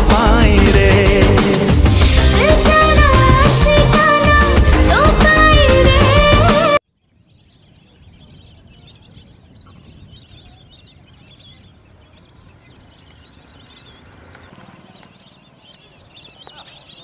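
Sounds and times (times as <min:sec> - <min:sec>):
waterfowl flock calling: 0:07.2 - 0:17.0.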